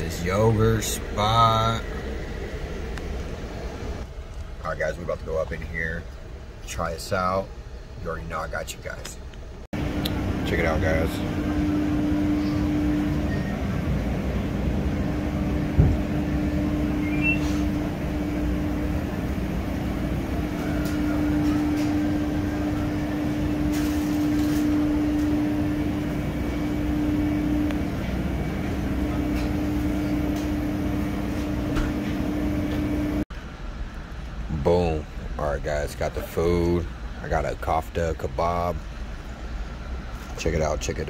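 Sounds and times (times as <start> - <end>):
kitchen machinery hum: 0.0 - 41.0
sharp thump: 15.8 - 16.0.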